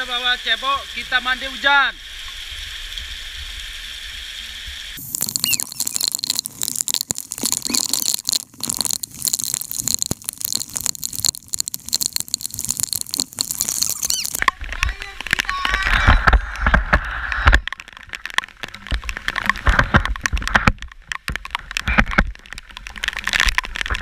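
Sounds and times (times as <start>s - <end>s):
raindrops patter near microphone: 4.8s - 24.0s
heavy rain falling: 5.0s - 24.0s.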